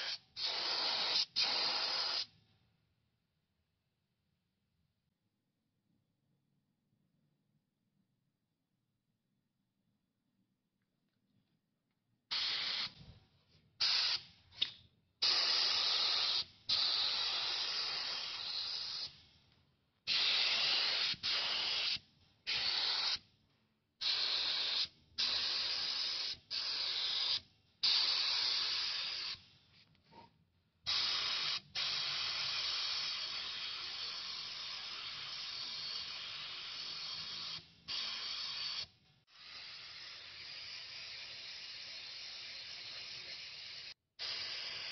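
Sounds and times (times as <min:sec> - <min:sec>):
spray gun hissing compressed air: 0:00.0 - 0:02.3, 0:12.3 - 0:13.0, 0:13.8 - 0:14.2, 0:15.2 - 0:19.2, 0:20.1 - 0:23.2, 0:24.0 - 0:29.4, 0:30.9 - 0:44.9.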